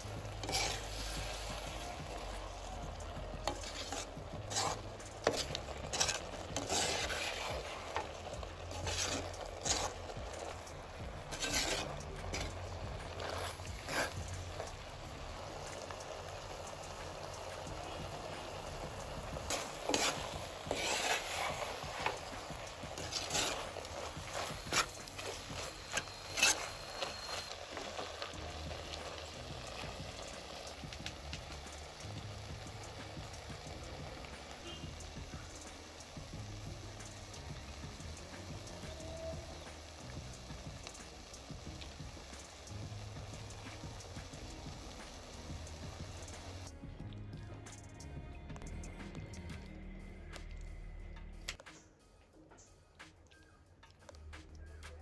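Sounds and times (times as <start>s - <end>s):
ladle scraping clay pot: 0.0s - 14.9s, 15.6s - 31.0s
chutney sizzling: 0.0s - 50.6s.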